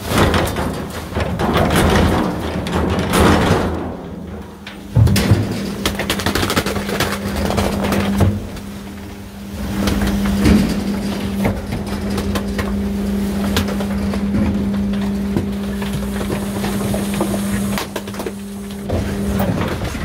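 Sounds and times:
plastic and cardboard cracking: 0.0s - 9.0s
garbage truck compactor humming: 0.0s - 20.0s.

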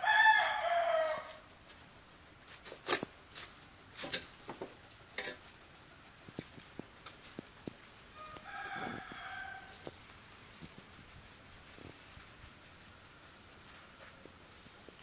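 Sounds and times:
faint rooster crowing: 0.0s - 1.5s, 8.1s - 10.0s.

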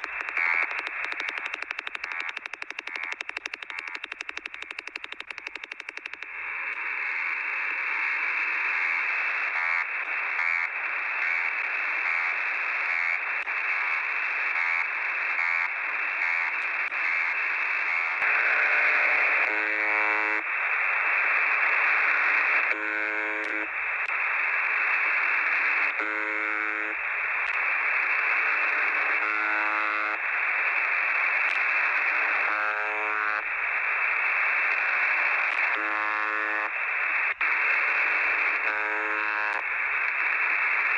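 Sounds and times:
short coarse radio buzzes: 0.0s - 7.4s, 25.6s - 40.9s
faint repeating radio pulse: 0.0s - 40.9s
shortwave radio static: 0.0s - 40.9s.

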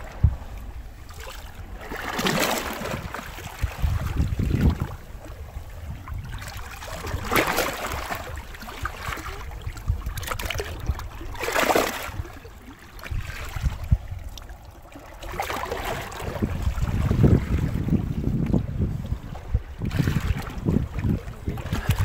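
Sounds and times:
wind rumbling on microphone: 0.0s - 22.0s
seawater washing over rocks: 1.0s - 5.1s, 6.4s - 12.2s, 19.8s - 22.0s.

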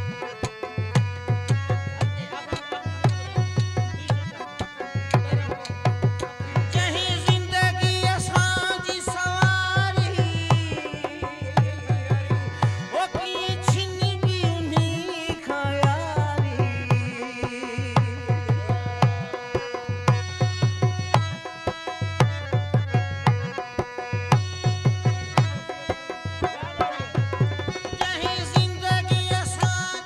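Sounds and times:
hand drum rhythm: 0.0s - 21.4s
harmonium tones: 0.0s - 30.0s
man singing: 5.2s - 20.1s, 25.6s - 30.0s.

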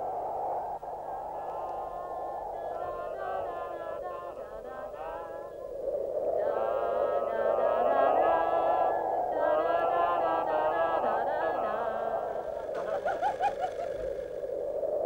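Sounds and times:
music with sung-sounding melody: 1.5s - 5.7s, 6.4s - 12.8s.

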